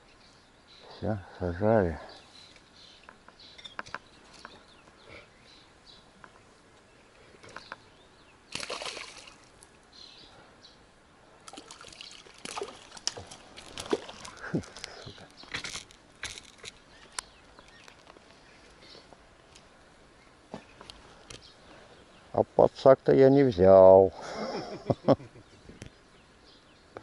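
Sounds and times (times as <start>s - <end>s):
fish splashing in water: 8.5s - 9.5s, 11.4s - 14.8s.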